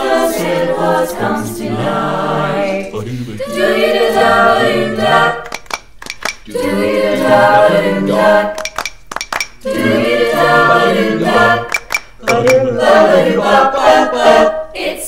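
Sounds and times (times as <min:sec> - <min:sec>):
a cappella group singing: 0:00.0 - 0:05.8, 0:06.4 - 0:15.0
sharp hand claps: 0:05.4 - 0:06.5, 0:08.6 - 0:09.6, 0:11.7 - 0:12.6.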